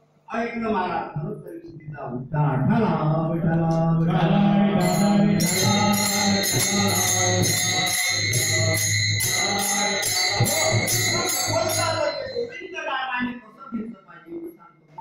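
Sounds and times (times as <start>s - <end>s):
men singing together: 2.6s - 12.4s
hand cymbals clashing: 4.8s - 12.6s.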